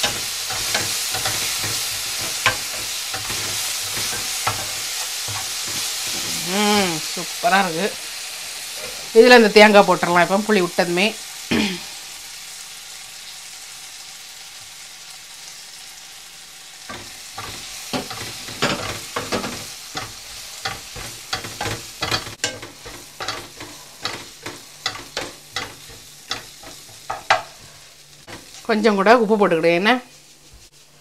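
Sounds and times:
wooden spatula scraping a pan: 0:00.0 - 0:06.5, 0:16.9 - 0:28.7, 0:29.5 - 0:31.0
onion and garlic sizzling in a pan: 0:00.0 - 0:31.0.

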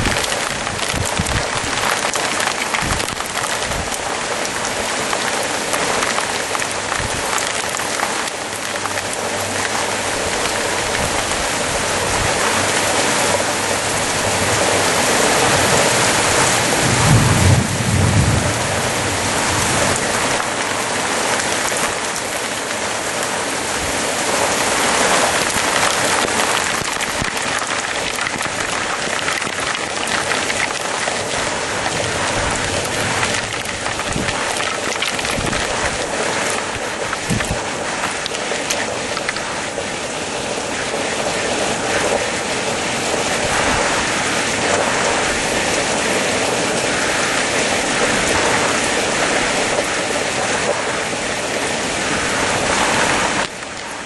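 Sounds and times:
low rumble of thunder: 0:00.0 - 0:04.5, 0:13.6 - 0:22.2, 0:25.5 - 0:37.7
heavy rain falling: 0:00.0 - 0:54.0.

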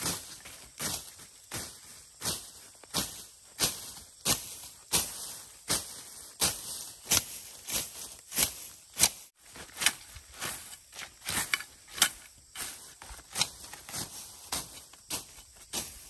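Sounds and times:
blade slashing through weeds: 0:05.7 - 0:16.0.

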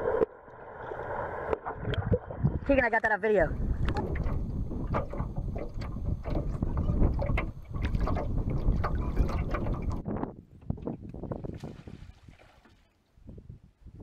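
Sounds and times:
wind buffeting microphone: 0:01.8 - 0:02.8, 0:03.4 - 0:12.4, 0:13.2 - 0:14.0
water lapping against boat hull: 0:03.5 - 0:13.1.

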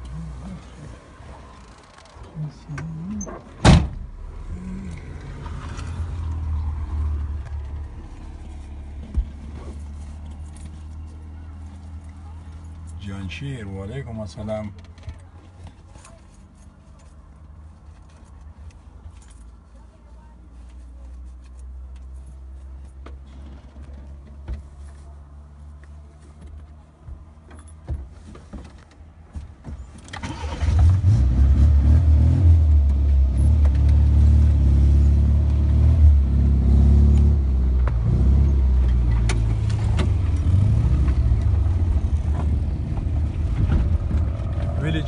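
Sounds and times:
engine clicks and rattles: 0:29.9 - 0:31.0.

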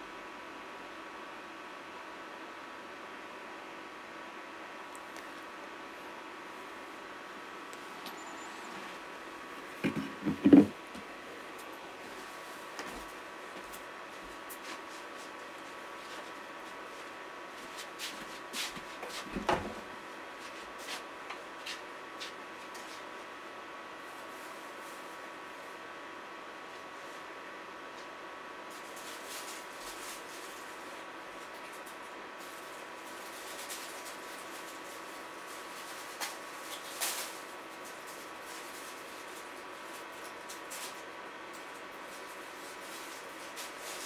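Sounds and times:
faint hum: 0:00.0 - 0:44.0
objects knocking and clicking: 0:09.8 - 0:10.8.

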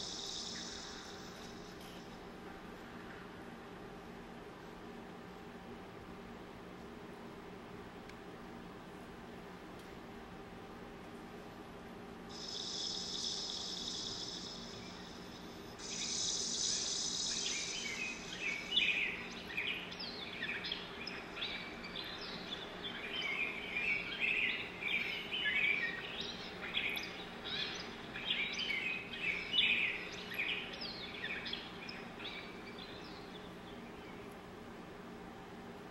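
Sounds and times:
faint low hum: 0:00.0 - 0:35.9
high chirps and twitters: 0:12.3 - 0:22.4.

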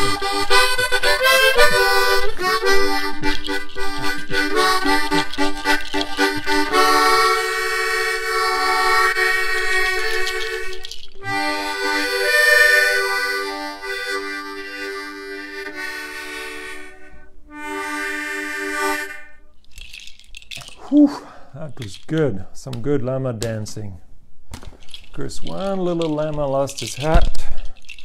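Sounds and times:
harmonica chords: 0:00.0 - 0:19.6.

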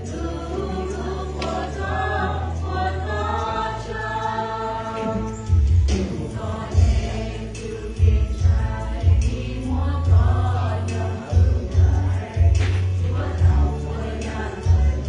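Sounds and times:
choir singing a hymn: 0:00.0 - 0:15.0
deep pulsing bass line: 0:05.5 - 0:15.0.

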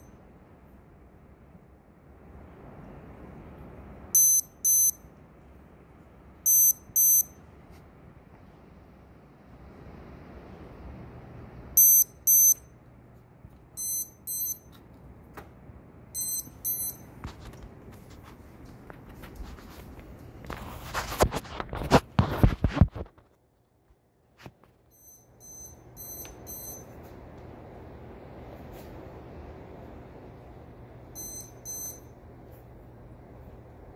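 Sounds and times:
paired electronic beeps: 0:04.2 - 0:05.0, 0:06.5 - 0:07.4, 0:11.8 - 0:12.7, 0:13.8 - 0:14.8, 0:16.2 - 0:17.1, 0:24.9 - 0:27.0, 0:31.2 - 0:32.1
rustling and knocks near microphone: 0:17.2 - 0:23.4.

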